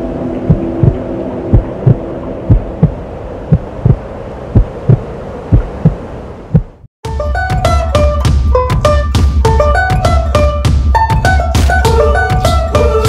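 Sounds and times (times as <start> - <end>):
low drone: 0.0 - 6.2
heartbeat thumps: 0.4 - 12.7.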